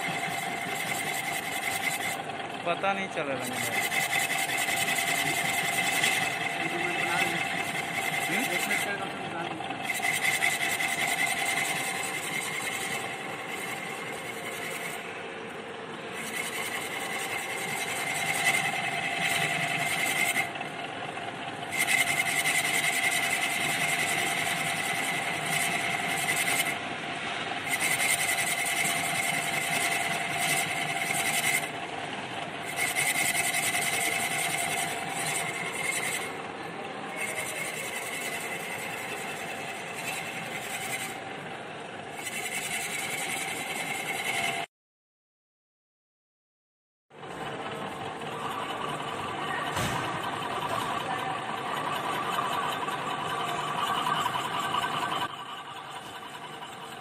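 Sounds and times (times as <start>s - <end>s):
hissing cutting noise: 0.0s - 41.3s
machine tool whining: 0.0s - 44.7s, 47.1s - 57.0s.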